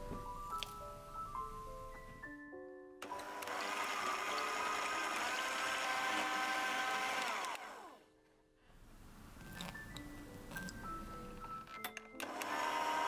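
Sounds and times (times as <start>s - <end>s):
electric hand mixer whirring: 3.0s - 8.1s, 12.2s - 13.0s.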